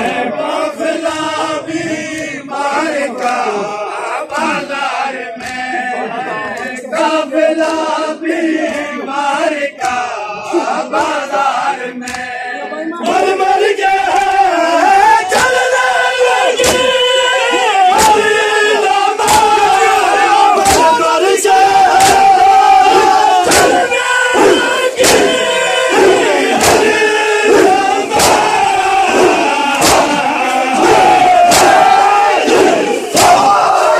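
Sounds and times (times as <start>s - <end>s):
men chanting: 0.0s - 33.9s
hands slapping chests: 3.1s - 4.6s, 5.4s - 5.7s, 9.8s - 11.3s, 12.0s - 12.4s, 15.2s - 15.6s, 16.5s - 17.0s, 17.9s - 18.3s, 19.2s - 20.0s, 20.6s - 21.0s, 21.9s - 33.9s.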